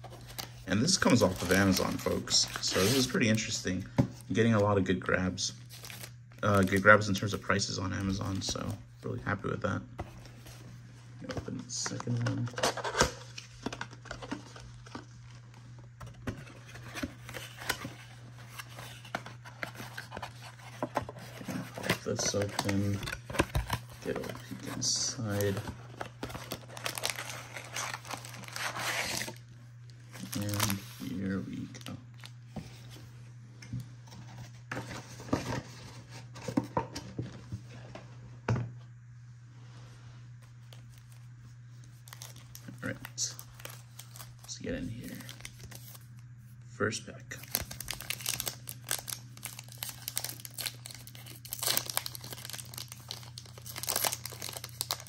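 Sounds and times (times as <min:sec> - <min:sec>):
low steady hum: 0:00.0 - 0:55.0
foil card packs rustling and tapping: 0:16.0 - 0:29.4, 0:47.4 - 0:55.0.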